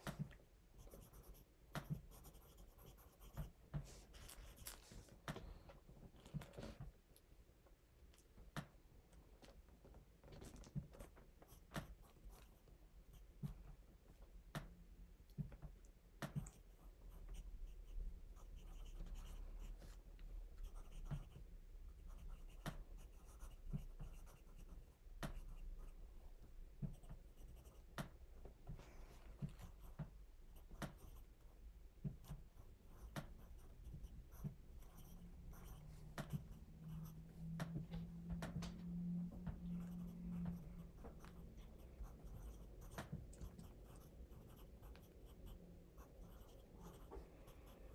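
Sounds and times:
pencil scratching on paper: 0.0s - 5.2s, 16.3s - 26.0s, 26.8s - 28.1s, 29.4s - 31.3s, 32.0s - 37.4s, 39.5s - 47.9s
low steady hum: 0.0s - 47.9s.

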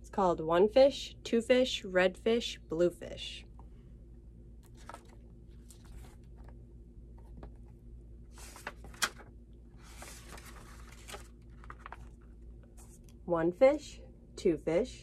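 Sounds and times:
book pages rustling: 4.6s - 13.2s.

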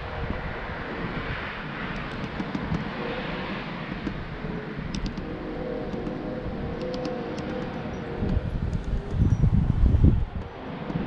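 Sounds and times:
outdoor rumble and hiss: 0.0s - 11.0s
faint high ticks: 4.9s - 5.3s, 6.8s - 11.0s.

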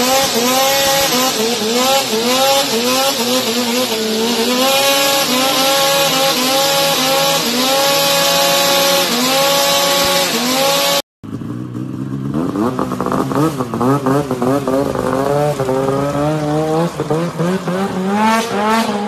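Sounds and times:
high-revving engine: 0.0s - 19.0s
snowmobile engine revving: 0.0s - 19.0s.

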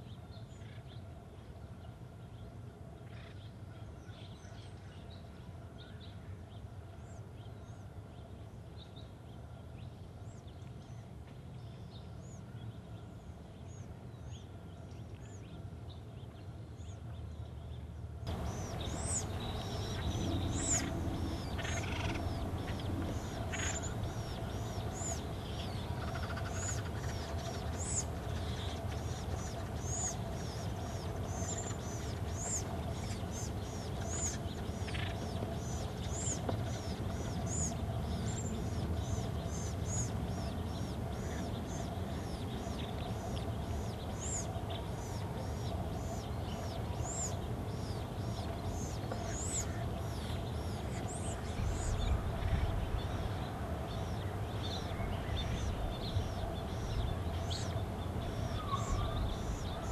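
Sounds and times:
steady low rumble: 18.3s - 44.0s
birds chirping: 18.3s - 59.9s.

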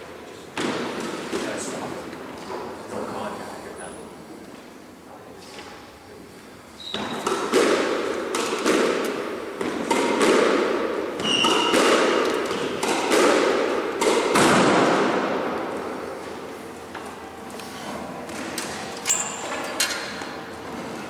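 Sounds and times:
shoe squeaks: 6.8s - 7.2s, 11.2s - 11.8s
squash ball smacks: 7.0s - 15.8s.

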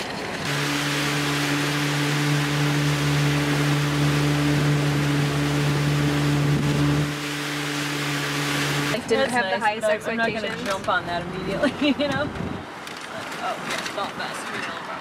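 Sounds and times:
outboard motor humming: 0.4s - 9.0s
wind and water rushing: 0.4s - 9.0s.

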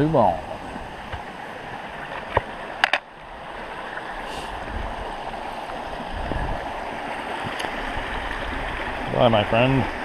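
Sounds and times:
creek water rushing over rocks: 0.0s - 10.0s.

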